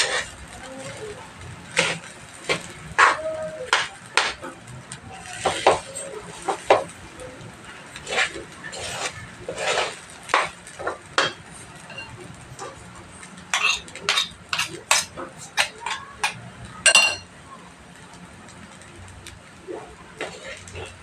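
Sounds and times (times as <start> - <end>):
metal spatula scraping frying pan: 0.0 - 1.0, 1.7 - 4.4, 5.2 - 6.9, 7.9 - 12.2, 13.5 - 16.4, 20.2 - 21.0.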